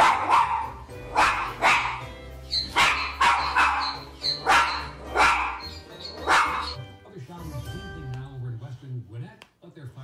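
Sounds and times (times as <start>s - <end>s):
small dog barking: 0.0s - 2.0s, 2.6s - 6.8s.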